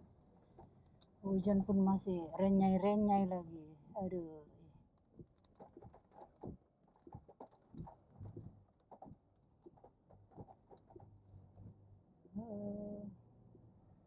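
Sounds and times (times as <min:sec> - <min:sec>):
low steady hum: 0:00.0 - 0:14.0
rain drops on car roof: 0:05.0 - 0:11.1.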